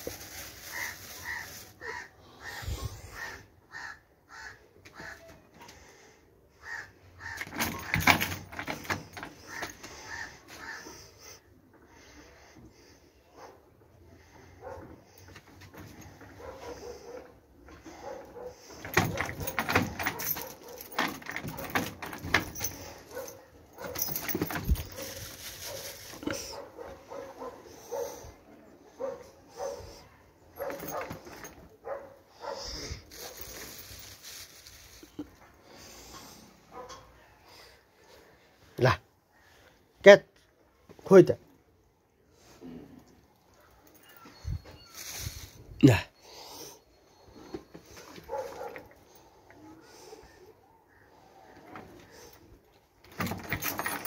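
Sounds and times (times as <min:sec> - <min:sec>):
crow cawing: 0:00.7 - 0:05.3, 0:06.6 - 0:07.5, 0:09.5 - 0:11.0
clatter of knocks and rattles: 0:07.4 - 0:10.0, 0:18.6 - 0:26.2, 0:30.6 - 0:31.6, 0:53.0 - 0:54.0
dog whining softly: 0:43.8 - 0:45.7, 0:46.4 - 0:48.9.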